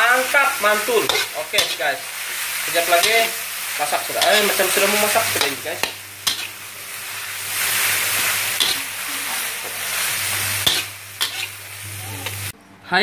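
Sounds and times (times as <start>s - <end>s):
food sizzling in a wok: 0.0s - 12.6s
spatula scraping a wok: 0.7s - 12.5s.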